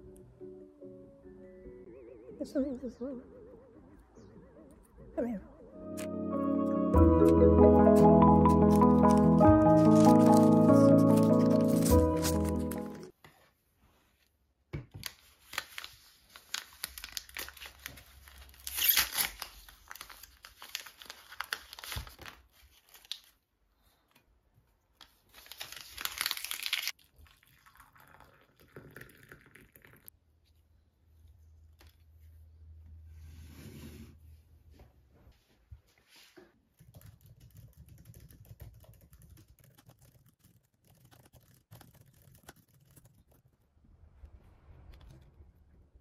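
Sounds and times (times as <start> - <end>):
paper sachet tearing: 8.4 - 13.1, 15.4 - 23.4, 25.3 - 27.0
plastic packaging crinkling: 8.6 - 13.1, 15.0 - 23.4, 25.1 - 27.0.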